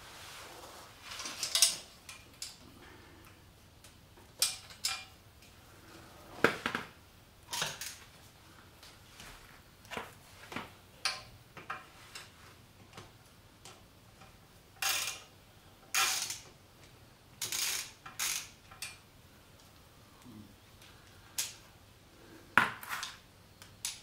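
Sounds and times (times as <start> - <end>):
socket ratchet clicking: 14.8 - 15.3, 15.9 - 16.5, 17.4 - 19.0.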